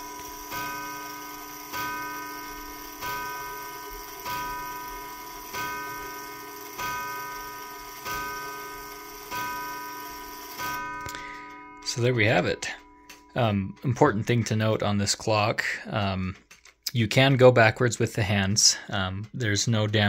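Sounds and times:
clock striking on gong: 0.0s - 14.4s.

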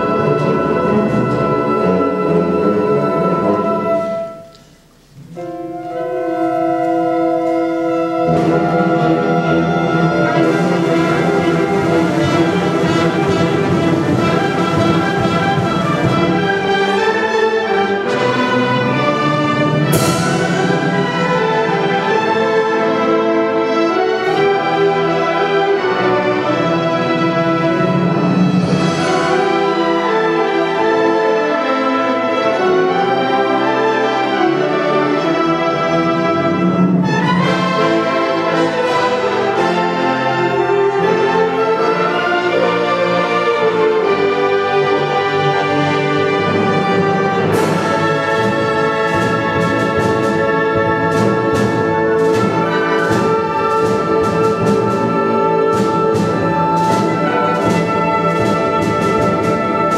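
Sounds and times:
wind band playing: 0.0s - 59.9s.

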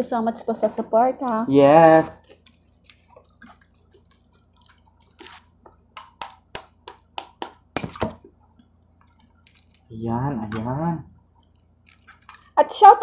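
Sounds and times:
eggshell crackling being peeled: 2.2s - 7.7s, 8.6s - 12.6s
spoon tapping on eggshell: 5.9s - 8.2s.

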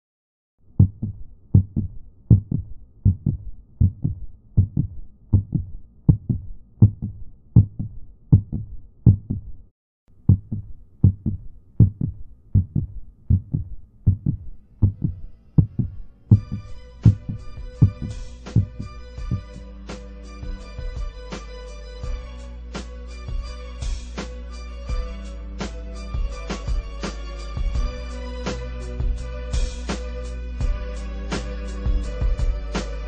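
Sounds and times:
heartbeat thumps: 0.8s - 9.6s, 10.3s - 19.7s, 20.4s - 21.2s, 27.6s - 28.0s, 31.9s - 32.6s
sustained musical tones: 15.0s - 22.7s.

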